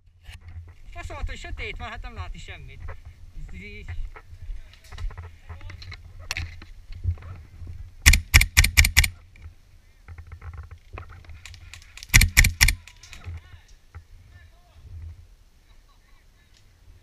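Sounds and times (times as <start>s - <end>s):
muffled airsoft rifle shots: 8.0s - 9.1s, 12.0s - 12.8s.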